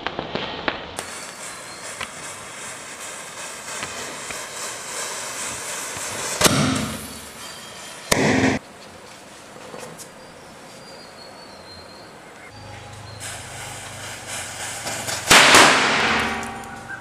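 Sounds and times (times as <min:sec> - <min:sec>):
firecracker bang: 0:00.0 - 0:07.5, 0:08.1 - 0:08.6, 0:13.2 - 0:17.0
matchsticks crackling: 0:01.0 - 0:07.2.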